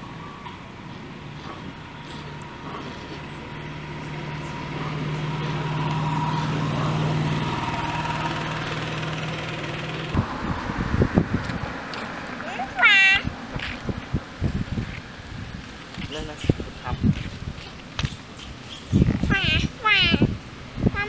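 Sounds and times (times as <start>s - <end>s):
motor engine passing: 0.0s - 16.3s.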